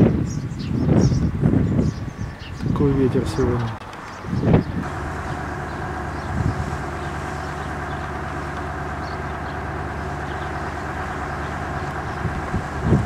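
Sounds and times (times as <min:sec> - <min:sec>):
strong wind on microphone: 0:00.0 - 0:05.0, 0:05.7 - 0:07.1, 0:12.0 - 0:13.0.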